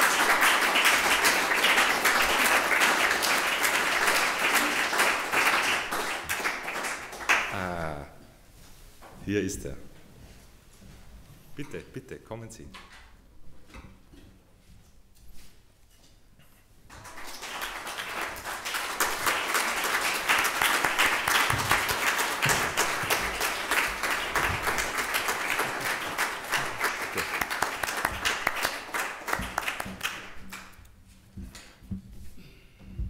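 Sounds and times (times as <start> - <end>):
audience applauding: 0.0 - 8.0, 16.9 - 30.8.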